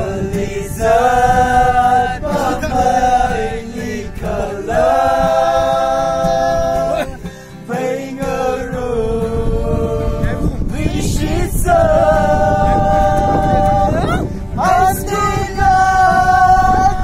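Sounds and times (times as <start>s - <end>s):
acoustic guitar: 0.0s - 17.0s
group of voices singing: 0.0s - 17.0s.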